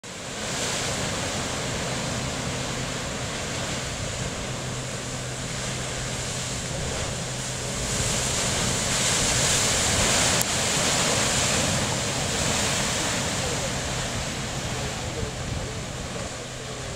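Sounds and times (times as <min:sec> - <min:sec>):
sea surf rushing through rocks: 0:00.0 - 0:16.9.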